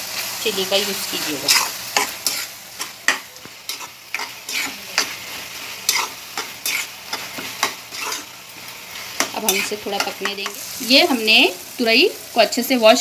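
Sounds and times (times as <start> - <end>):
faint frying sizzle: 0.0 - 13.0
spatula scraping a pan: 1.4 - 10.9.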